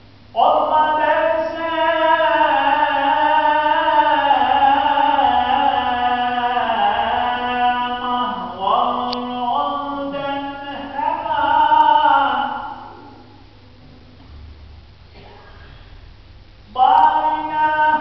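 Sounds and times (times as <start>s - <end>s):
man chanting unaccompanied: 0.3s - 13.4s, 16.7s - 18.0s.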